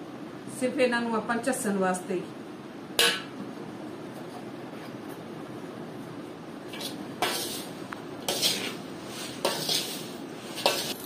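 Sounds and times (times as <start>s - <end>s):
spoon scraping steel bowl: 6.7s - 7.7s, 8.3s - 11.0s.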